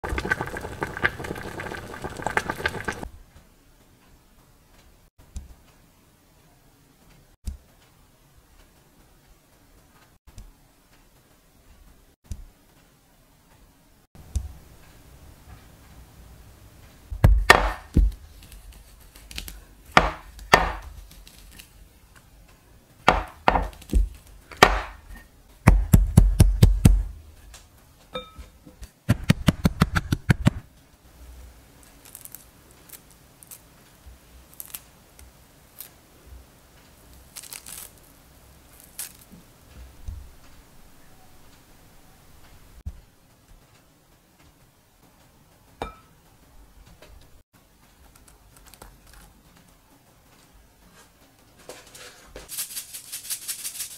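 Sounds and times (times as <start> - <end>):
rolling pin thudding on board: 17.2 - 18.2, 20.0 - 20.9, 23.1 - 25.0.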